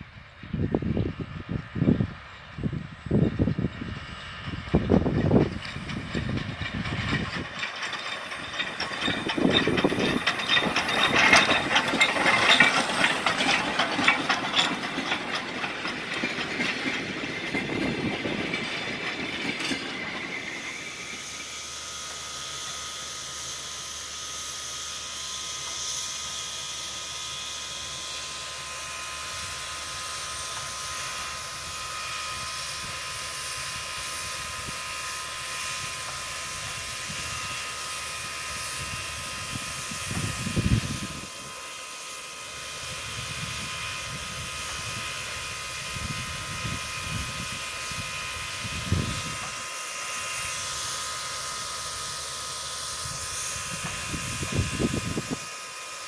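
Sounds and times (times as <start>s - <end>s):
steam locomotive clatter on track: 0.0s - 56.0s
steam hissing: 7.4s - 56.0s.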